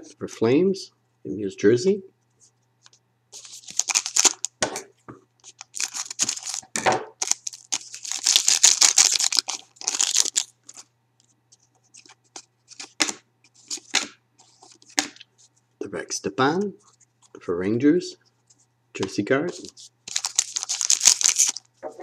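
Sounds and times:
foil wrapper tearing and crinkling: 0:03.4 - 0:04.5, 0:05.5 - 0:10.9, 0:20.1 - 0:21.7.

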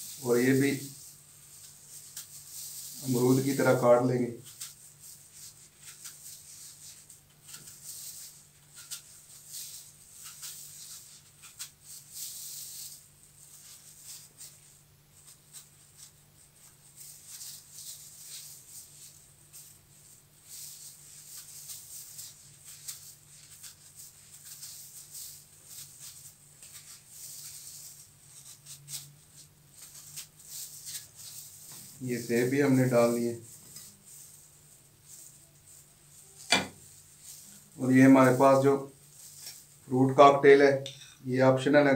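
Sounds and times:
knife slicing apple: 0:36.4 - 0:36.9.

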